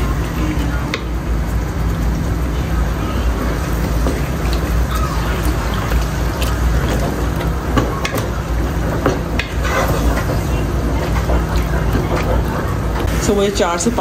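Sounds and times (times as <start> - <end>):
meat sizzling in oil: 0.0 - 14.0
spatula scraping a pot: 8.8 - 13.1.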